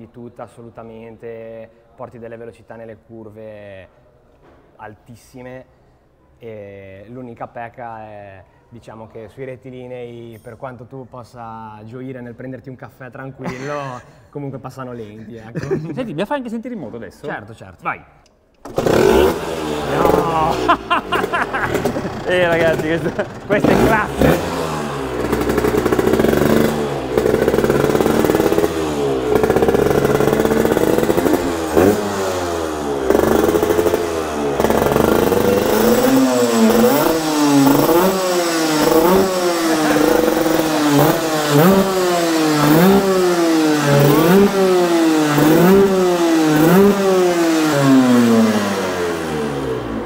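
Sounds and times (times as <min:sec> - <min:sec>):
motorcycle engine revving: 0:18.6 - 0:50.0.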